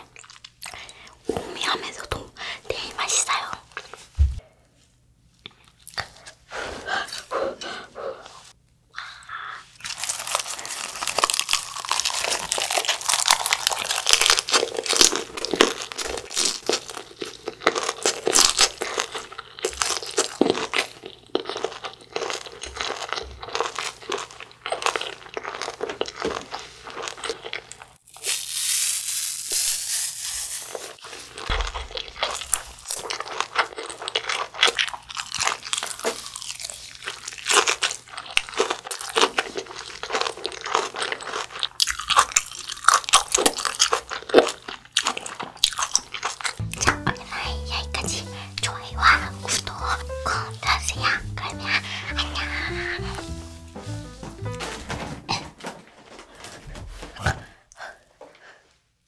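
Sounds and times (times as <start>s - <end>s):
close crunchy chewing: 9.8s - 28.8s, 30.8s - 53.2s.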